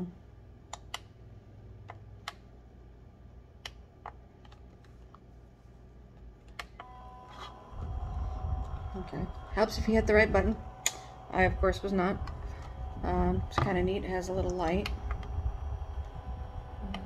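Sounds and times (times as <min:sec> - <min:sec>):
fan motor whine and hum: 0:00.0 - 0:17.0.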